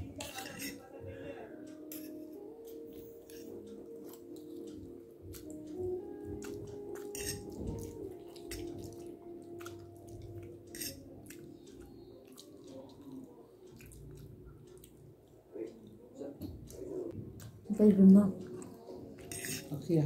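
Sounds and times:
chewing noodles: 3.3 - 16.0
fork clicking against plate: 6.4 - 9.0, 10.7 - 11.4, 19.2 - 19.7.

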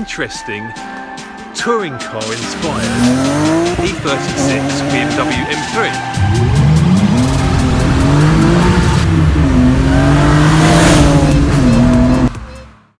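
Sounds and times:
car engine running hard: 2.6 - 12.9.

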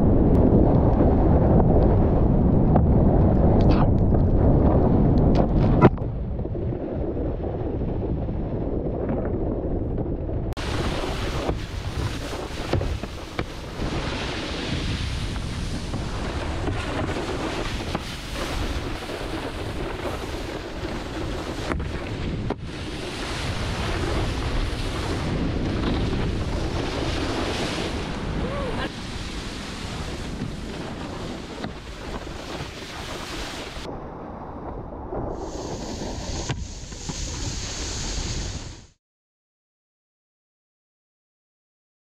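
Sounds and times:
wind buffeting microphone: 0.0 - 39.0
wakeboard spray hissing on water: 35.4 - 38.9.

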